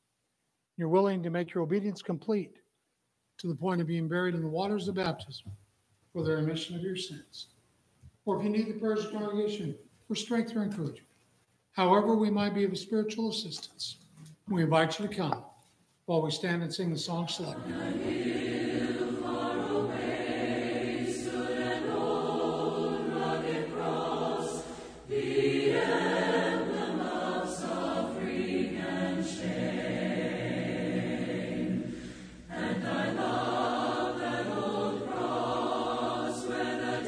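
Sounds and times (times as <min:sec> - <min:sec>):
congregation singing a hymn: 0:17.2 - 0:37.0.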